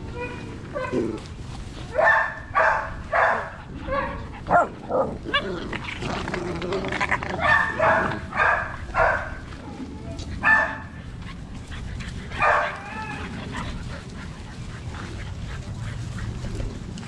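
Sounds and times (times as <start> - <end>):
puppies high play barks: 7.0 - 9.4, 12.4 - 13.7.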